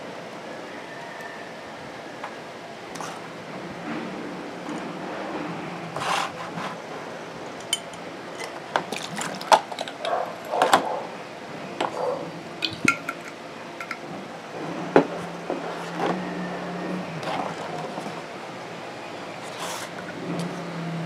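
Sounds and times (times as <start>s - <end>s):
liquid pouring into plastic tub: 8.8s - 9.9s
small splashes: 8.9s - 9.8s.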